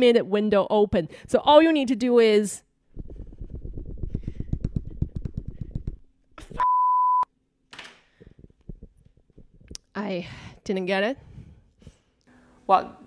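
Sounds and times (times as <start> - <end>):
rapid tapping on phone screen: 3.5 - 6.0
censor beep: 6.6 - 7.3.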